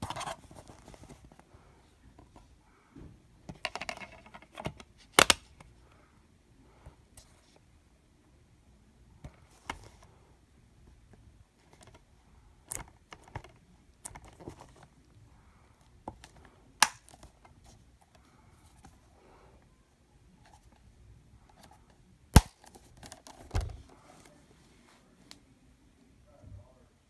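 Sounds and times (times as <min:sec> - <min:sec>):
light rubbing and shuffling: 0:00.0 - 0:03.0, 0:23.2 - 0:25.5
plastic case clicks and snaps: 0:03.5 - 0:05.7, 0:16.2 - 0:17.3.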